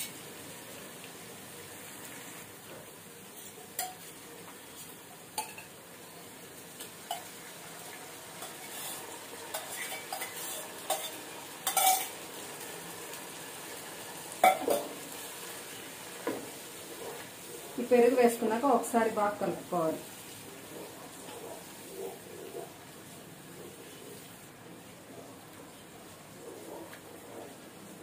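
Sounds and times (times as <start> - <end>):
food sizzling in hot oil: 0.0 - 25.1
spatula knocking and scraping pan: 8.4 - 12.1.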